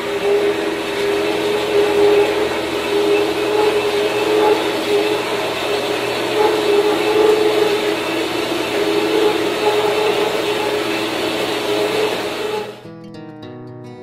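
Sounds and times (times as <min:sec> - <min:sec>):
bandsaw cutting metal: 0:00.0 - 0:12.8.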